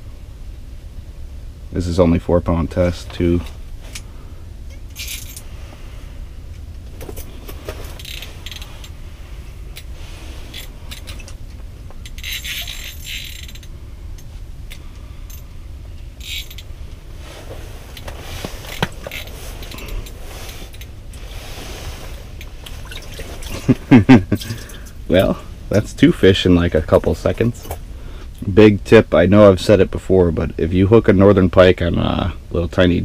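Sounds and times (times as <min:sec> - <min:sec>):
low rumble: 0:00.0 - 0:30.8
fishing reel ratcheting drag: 0:12.0 - 0:13.7, 0:16.2 - 0:16.6.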